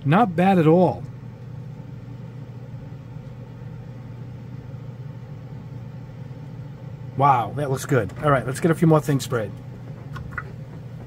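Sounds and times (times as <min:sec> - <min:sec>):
exhaust fan humming: 0:00.0 - 0:11.0.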